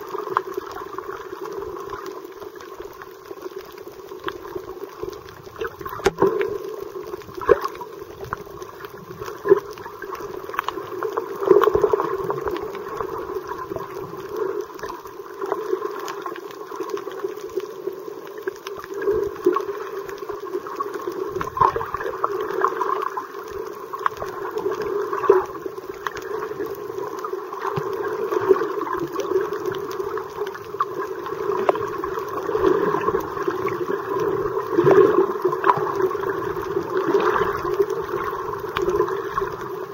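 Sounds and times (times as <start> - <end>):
muffled underwater water noise: 0.0 - 39.9
sharp underwater clicks: 5.2 - 12.8.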